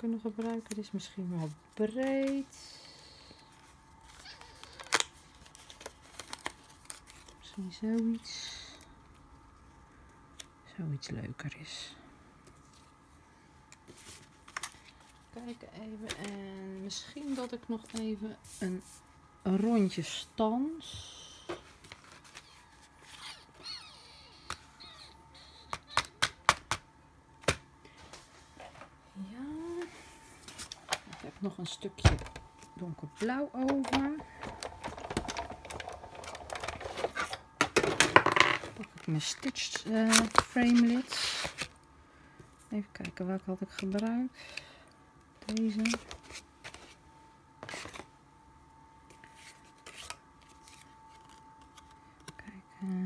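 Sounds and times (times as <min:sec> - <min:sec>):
faint steady hum: 0:00.0 - 0:53.0
cardstock rustling: 0:38.8 - 0:41.7, 0:45.4 - 0:47.0.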